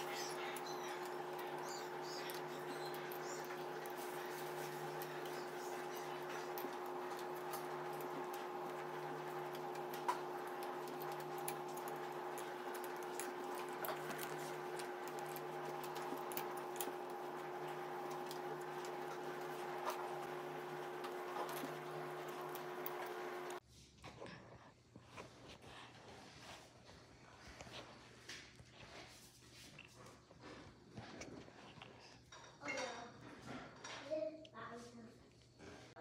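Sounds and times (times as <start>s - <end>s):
faint clicks and ticks: 0.0s - 23.6s
steady hum: 0.0s - 23.6s.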